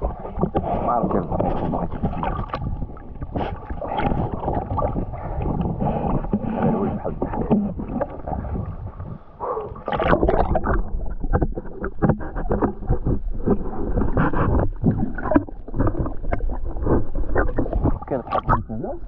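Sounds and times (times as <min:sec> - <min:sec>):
sea water sloshing and gurgling: 0:00.0 - 0:19.0
water splashes and knocks: 0:00.0 - 0:19.0.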